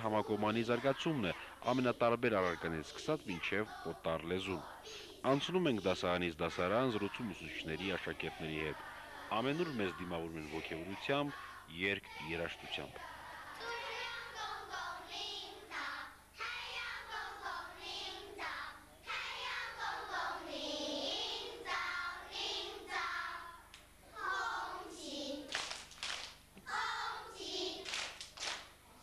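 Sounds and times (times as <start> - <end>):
children singing in unison: 6.5 - 25.5, 26.6 - 28.0
hand claps: 25.5 - 26.4, 27.8 - 28.8.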